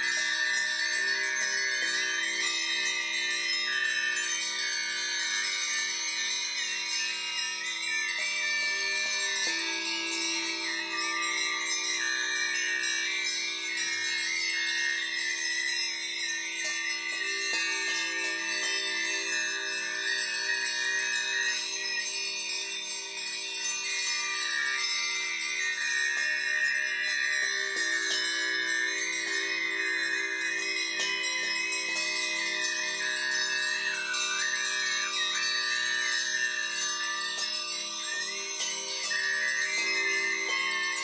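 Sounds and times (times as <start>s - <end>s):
handbells ringing: 0.0s - 41.0s
singing bowls humming: 0.0s - 41.0s.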